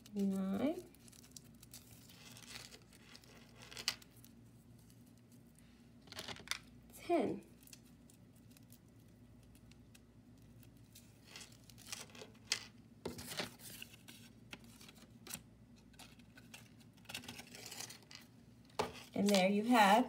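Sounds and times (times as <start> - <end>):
cereal rings rustling and clicking: 0.0 - 6.8, 7.5 - 12.8.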